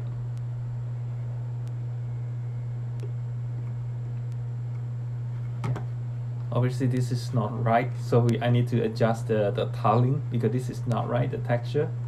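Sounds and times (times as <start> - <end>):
steady low hum with hiss: 0.0 - 12.0.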